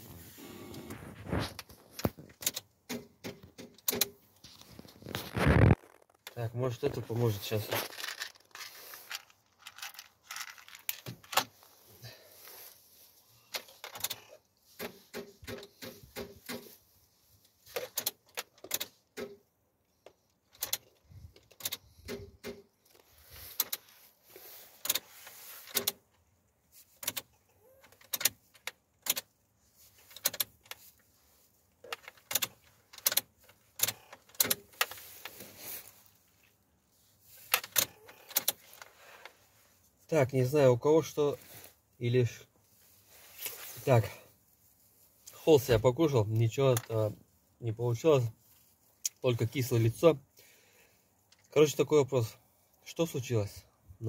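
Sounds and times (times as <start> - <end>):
ignition key and controls clicking: 2.3 - 4.2, 17.8 - 22.7, 27.0 - 29.3, 30.0 - 30.8, 31.8 - 34.9.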